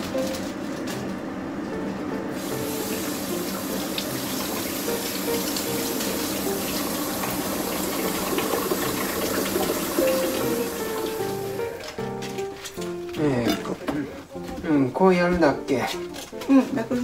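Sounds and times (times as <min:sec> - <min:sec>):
tap water splashing into sink: 0:02.9 - 0:11.2.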